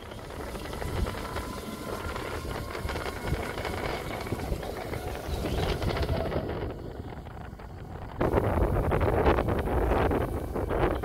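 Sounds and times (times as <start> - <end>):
auto-rickshaw engine rumble: 0.0 - 11.0
tyres on wet road: 0.0 - 11.0.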